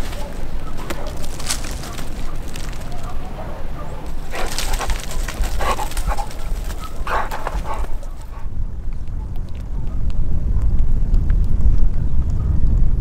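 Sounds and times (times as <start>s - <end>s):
large dog whining and barking: 2.0s - 8.4s.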